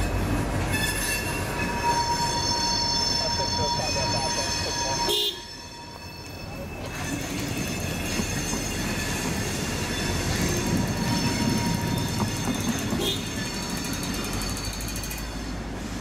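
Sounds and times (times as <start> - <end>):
diesel locomotive rumbling: 0.0 - 16.0
high-pitched wheel squeal: 0.0 - 16.0.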